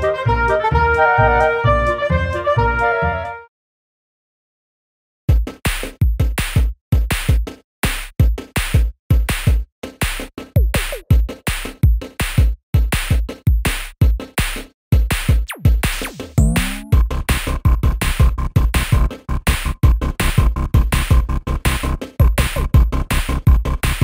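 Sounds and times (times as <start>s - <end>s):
electronic music with drum-machine beat: 8.2s - 24.0s.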